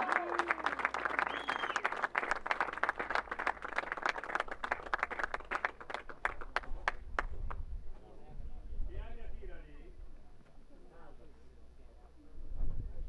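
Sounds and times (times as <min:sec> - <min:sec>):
spectators applauding: 0:00.0 - 0:07.3.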